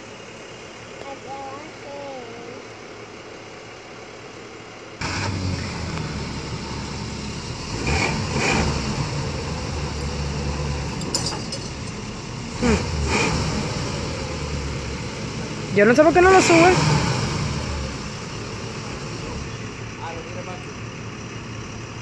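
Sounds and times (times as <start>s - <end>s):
vehicle engine starting and idling: 0.0s - 22.0s
engine revving: 5.0s - 21.0s.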